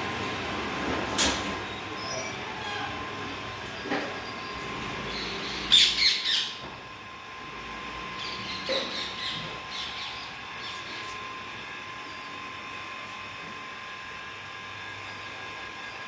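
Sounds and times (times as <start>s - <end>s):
parrot chirping: 5.1s - 6.6s, 8.2s - 10.7s
parrot squawking: 5.1s - 6.6s.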